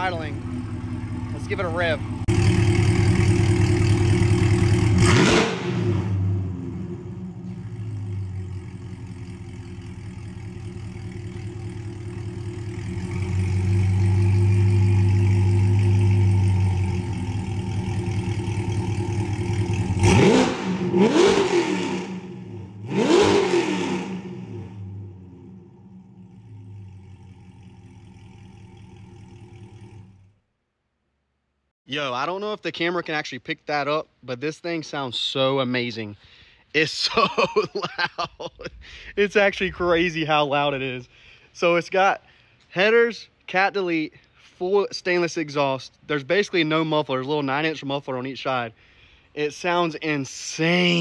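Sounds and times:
sports car engine idling and revving: 0.0s - 30.4s.

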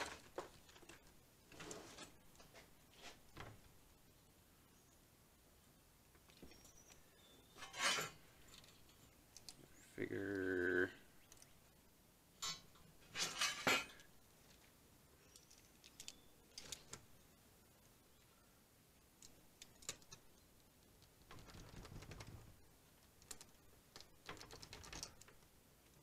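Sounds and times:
small parts clicking and rattling: 6.2s - 9.7s, 12.4s - 17.1s, 19.2s - 26.0s.

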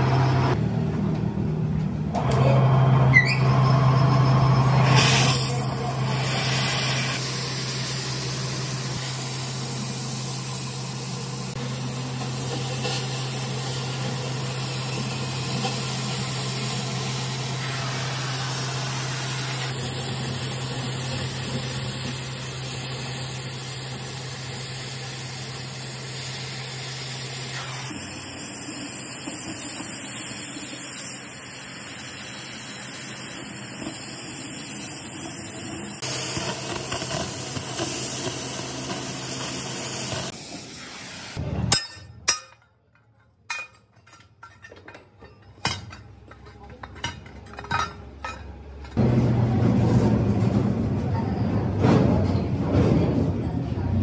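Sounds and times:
cutting torch hissing: 4.5s - 41.4s.

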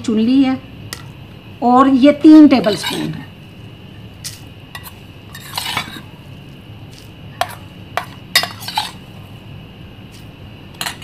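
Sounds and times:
metal spoon scraping bowl: 2.6s - 3.3s, 4.2s - 6.1s, 7.4s - 9.0s
spoon clinking on metal bowls: 7.4s - 9.0s.

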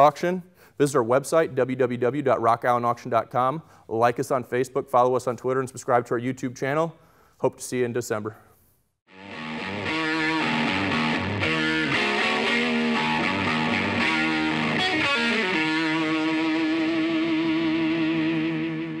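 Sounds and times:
distorted electric guitar music: 9.1s - 19.0s.

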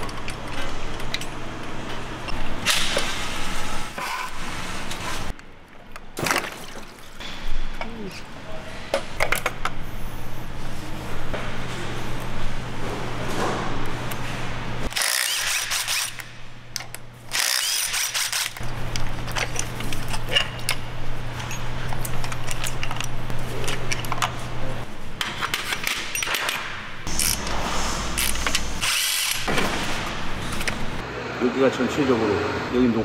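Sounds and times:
power driver whirring: 14.9s - 16.3s, 17.3s - 18.6s
metal tools clinking: 19.3s - 24.3s.

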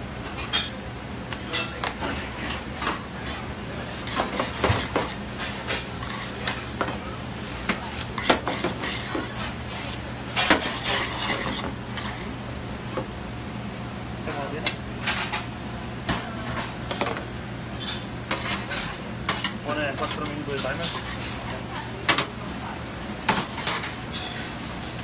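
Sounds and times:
metal spoon scraping pan: 8.2s - 12.2s.

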